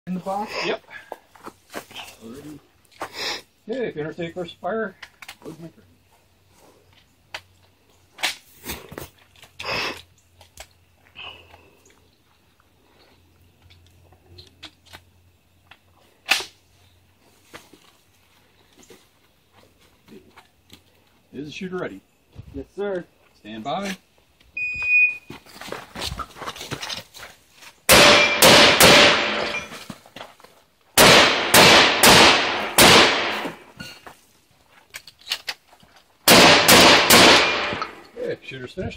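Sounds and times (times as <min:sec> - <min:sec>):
shotgun shots: 0:27.9 - 0:29.6, 0:31.0 - 0:33.7, 0:36.3 - 0:38.0.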